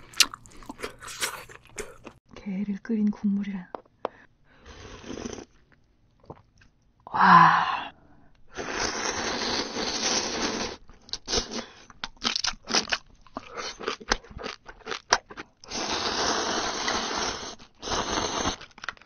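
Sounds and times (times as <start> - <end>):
wet chewing with smacks: 0.0 - 2.2
slurping noodles: 4.6 - 5.6, 8.5 - 11.8, 15.7 - 18.8.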